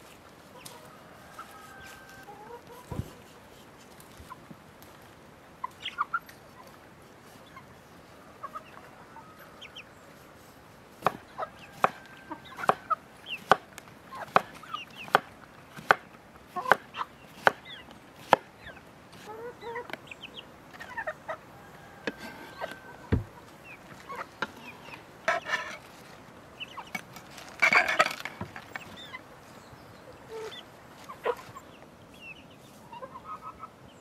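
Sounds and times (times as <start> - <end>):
chickens clucking: 0.0 - 34.0
knife chopping on wooden board: 11.0 - 12.0, 12.6 - 12.8, 13.4 - 16.0, 16.6 - 17.6, 18.2 - 18.5.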